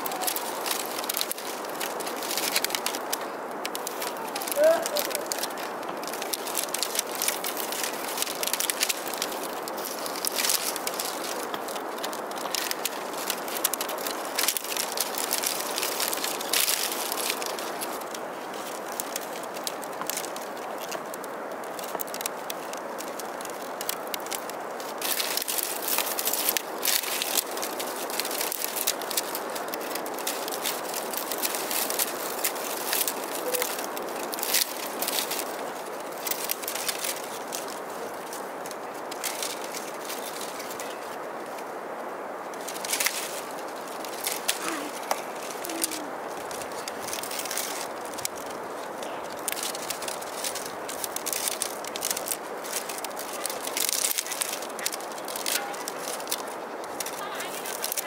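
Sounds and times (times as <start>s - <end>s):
bamboo strips rustling and clicking: 0.0s - 58.0s.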